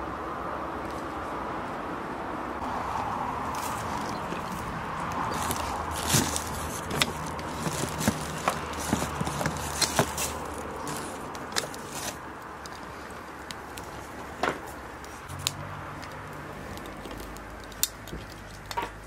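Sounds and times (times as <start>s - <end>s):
firewood crackling: 2.6s - 19.0s
sharp pops and snaps: 15.0s - 19.0s.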